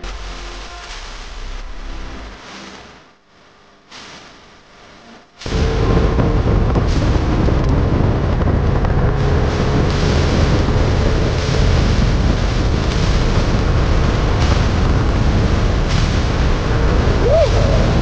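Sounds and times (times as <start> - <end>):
water noise: 5.5 - 18.0
wind on microphone: 5.5 - 18.0.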